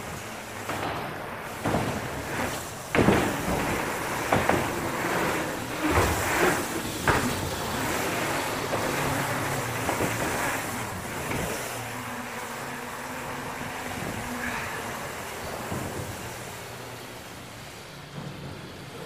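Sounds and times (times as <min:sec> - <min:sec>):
bike knocks and rattles: 0:00.0 - 0:12.0
tyre and wind rush: 0:00.0 - 0:19.0.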